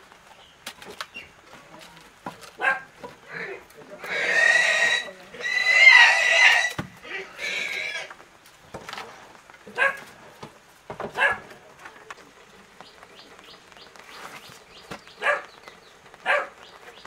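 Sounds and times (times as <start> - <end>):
animal crying: 3.3 - 8.1
firewood knocking on stone hearth: 10.4 - 11.2.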